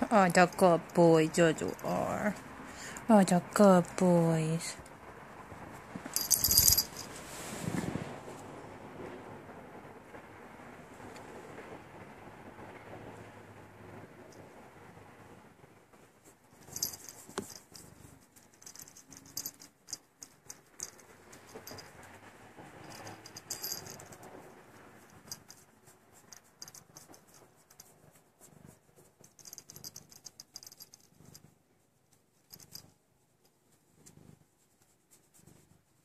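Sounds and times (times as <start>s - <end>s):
hand stroking cat fur: 5.5s - 8.5s, 16.0s - 32.8s, 33.4s - 36.0s.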